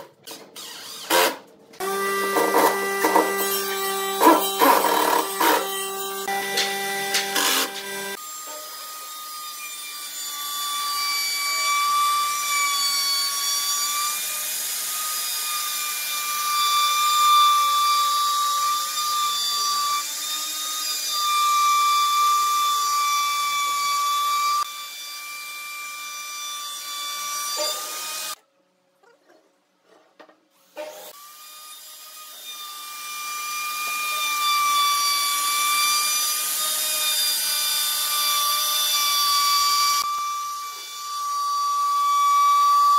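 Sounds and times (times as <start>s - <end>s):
electric router whining: 1.8s - 8.2s.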